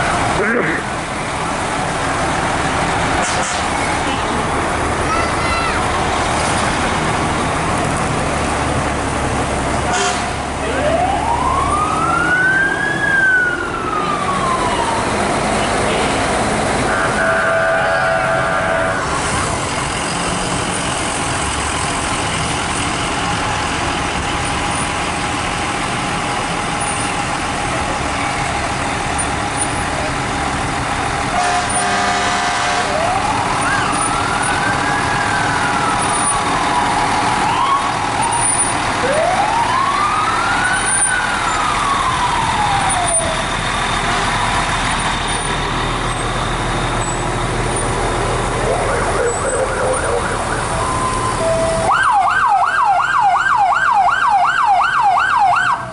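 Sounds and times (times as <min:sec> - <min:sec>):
fire engine siren wailing: 0:00.0 - 0:55.9
fire truck engines rumbling: 0:00.0 - 0:55.9.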